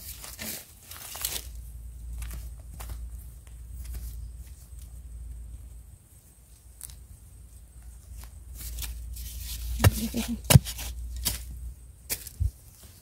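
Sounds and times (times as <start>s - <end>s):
digging tool striking ground: 8.8s - 12.5s.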